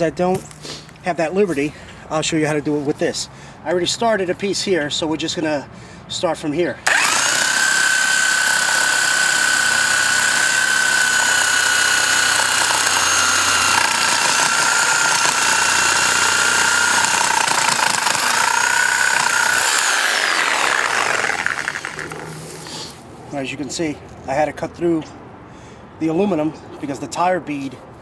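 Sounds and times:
reciprocating saw cutting: 6.8 - 23.0.

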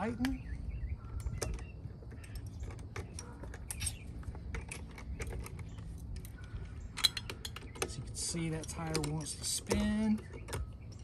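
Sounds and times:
socket wrench clicking on lug nuts: 4.6 - 11.0.

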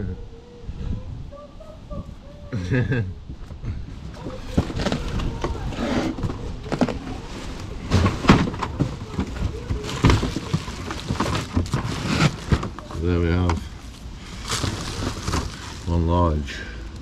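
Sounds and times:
cardboard scraping and rustling: 4.0 - 16.1
plastic wrapping crinkling: 6.4 - 16.1.

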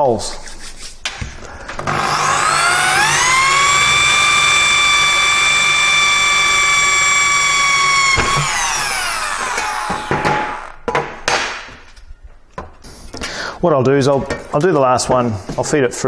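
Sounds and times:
power drill drilling metal: 1.7 - 10.8
knocks and clatters: 8.0 - 12.0.

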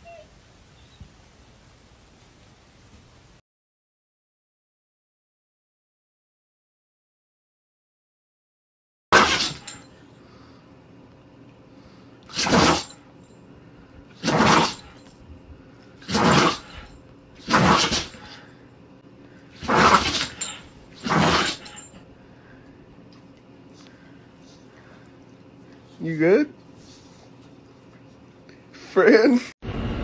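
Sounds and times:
dog sneezing: 9.2 - 9.8, 12.3 - 13.0, 14.1 - 15.0, 16.0 - 18.5, 19.5 - 21.9.

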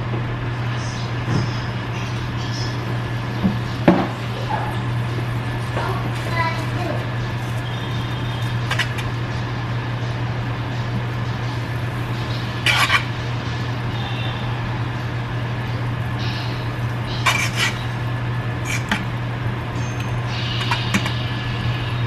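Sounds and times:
steady low hum: 0.0 - 22.0
metal fork scraping frying pan: 8.7 - 9.1, 12.6 - 13.1, 17.1 - 17.9, 18.6 - 19.0.

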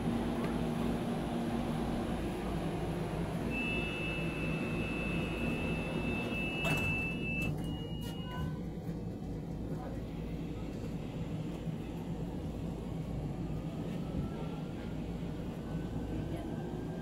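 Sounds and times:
train rumble: 0.0 - 17.0
high electronic warning tone: 3.5 - 8.2.

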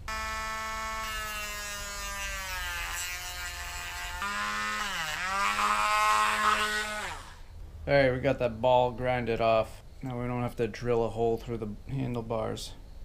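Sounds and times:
rotary tool whining: 0.0 - 7.5.

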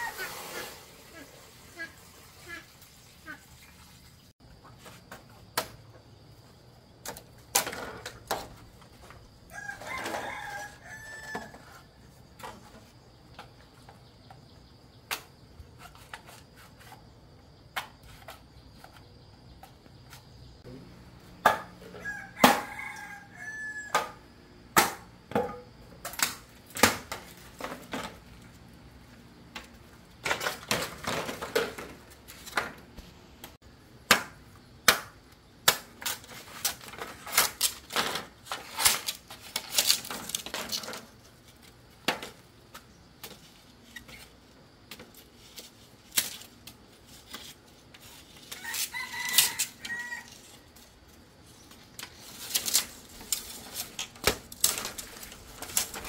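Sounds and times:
rooster crowing: 9.5 - 11.8, 21.9 - 24.3, 48.5 - 50.6.

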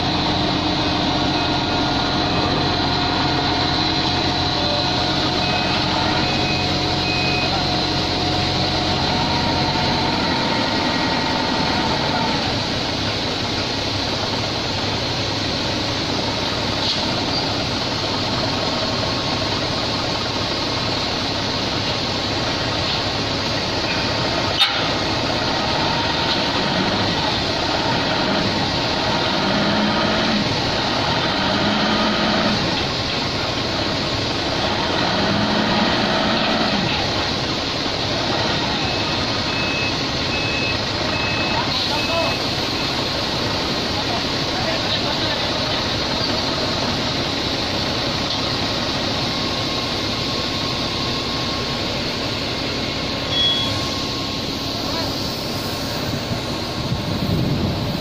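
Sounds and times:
steady hum: 0.0 - 41.1
engine running steadily: 0.0 - 58.0.

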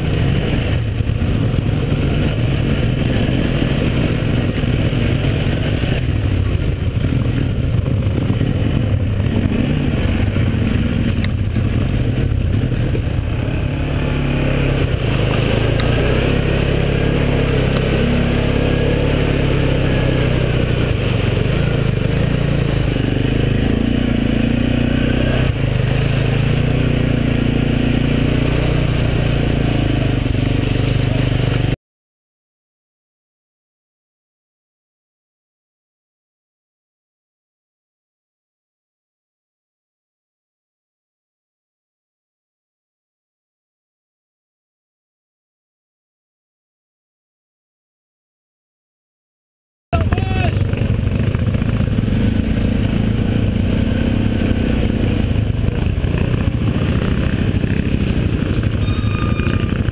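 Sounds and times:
quad engine running: 0.0 - 31.8, 49.9 - 59.9
steady rushing noise: 0.0 - 31.8, 50.0 - 59.9.

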